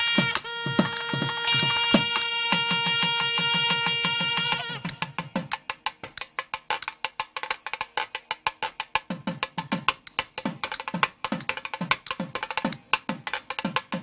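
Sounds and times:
sharp dry drum strokes: 0.0 - 6.1.

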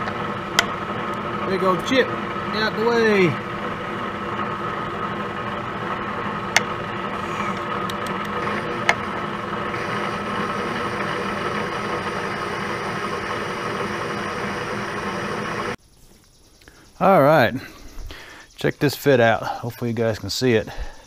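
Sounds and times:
milling machine running: 0.0 - 15.8.

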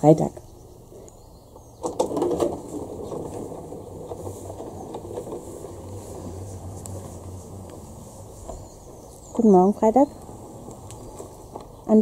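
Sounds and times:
clicks and knocks: 1.8 - 7.8
robotic lawn mower humming: 1.8 - 12.0.

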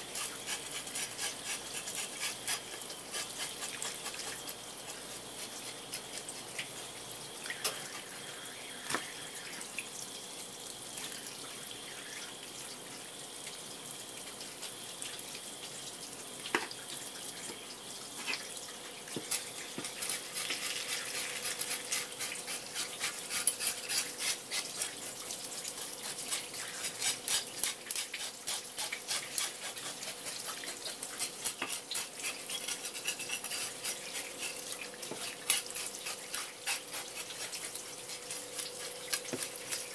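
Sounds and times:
knife scraping fish scales: 0.0 - 6.7, 19.2 - 39.9
tap water running: 0.0 - 39.9.

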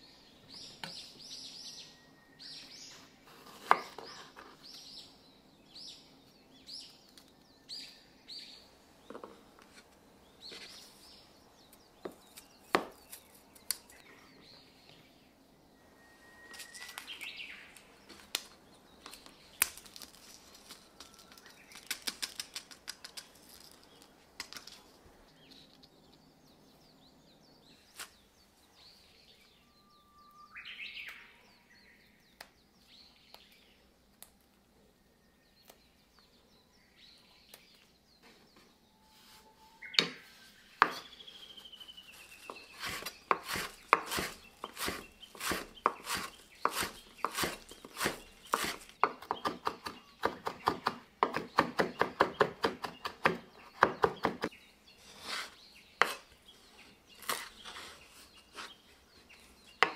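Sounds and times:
faint bird chirps: 0.0 - 24.2, 24.8 - 59.9
knife chopping on wooden board: 42.5 - 54.5.

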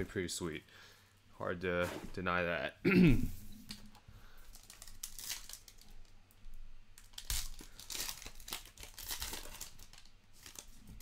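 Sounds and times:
foil wrapper tearing and crinkling: 4.5 - 6.1, 7.0 - 11.0.

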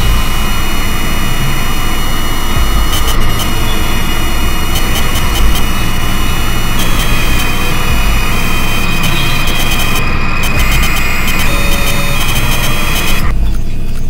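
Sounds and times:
crackling clicks: 0.0 - 14.0
faint high whine: 0.0 - 14.0
low rumble: 0.0 - 14.0.

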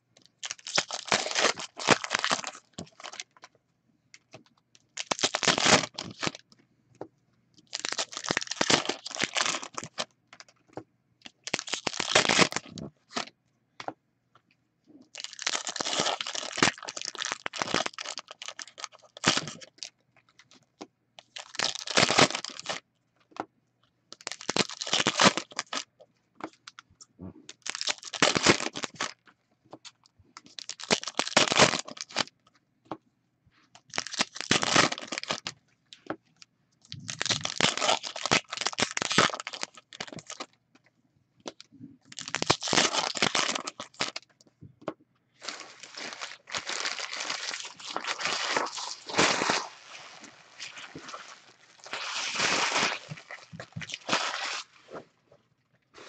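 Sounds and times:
wrapper crinkling and tearing: 0.4 - 3.4, 5.0 - 6.4, 7.6 - 10.5, 11.4 - 13.3, 15.1 - 19.9, 21.2 - 22.8, 24.2 - 25.9, 27.5 - 29.2, 30.5 - 32.3, 33.8 - 35.5, 36.9 - 40.5, 42.1 - 44.2, 45.4 - 55.0.

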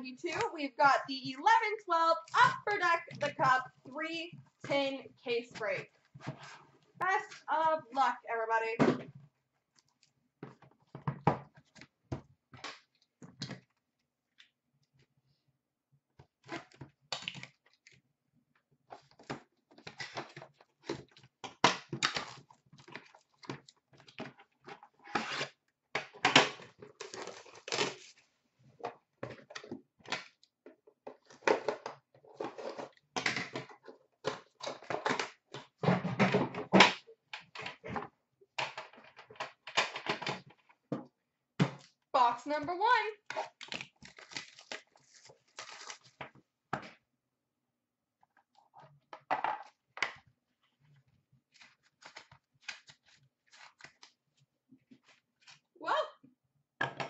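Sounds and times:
cardboard and plastic rustling: 30.9 - 36.7, 43.4 - 46.9.

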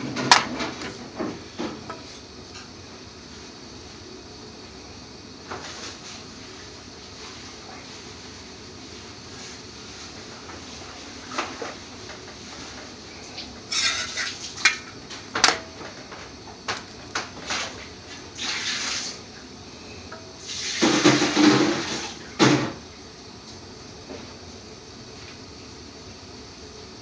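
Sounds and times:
metal spatula scraping griddle: 13.7 - 14.4.

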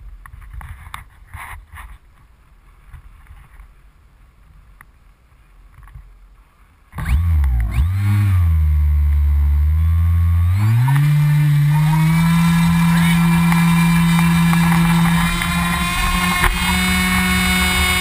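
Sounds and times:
model plane motor and propeller: 7.0 - 18.0.

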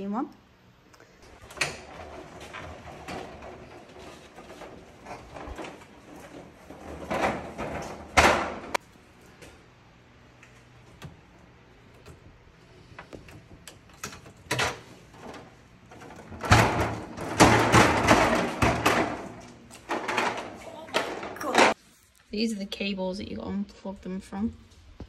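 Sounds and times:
metal clatter and scrape: 1.3 - 9.4.

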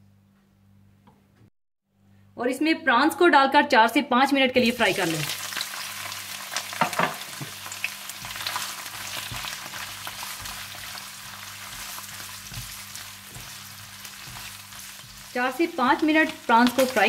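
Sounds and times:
prawns sizzling in hot oil: 4.6 - 17.0.

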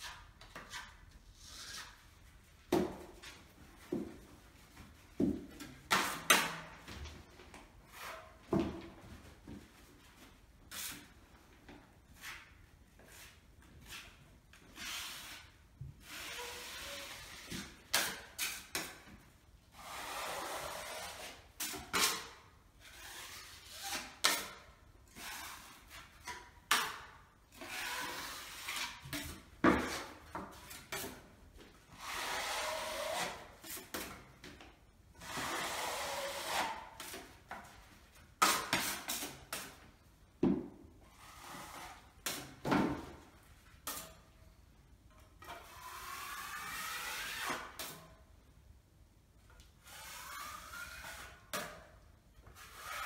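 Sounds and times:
putty knife scraping wall: 0.0 - 4.2, 12.2 - 31.3, 31.9 - 34.6, 35.2 - 39.9, 41.0 - 43.2, 45.4 - 48.2, 49.6 - 53.0.

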